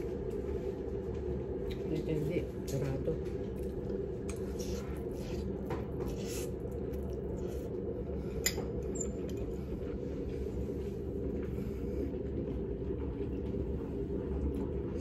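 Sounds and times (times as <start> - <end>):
steady low hum: 0.0 - 15.0
chewing: 3.4 - 7.8.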